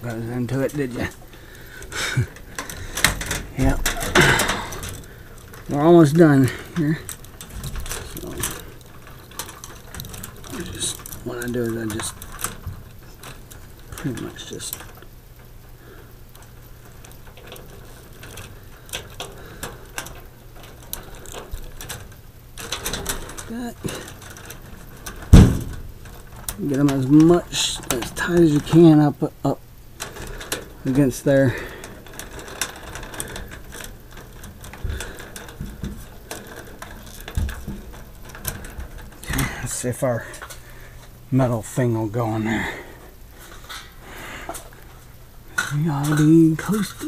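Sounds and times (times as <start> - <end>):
low steady hum: 0.0 - 47.0
wires clicking and rustling: 0.0 - 47.0
dull bumps: 22.8 - 27.4.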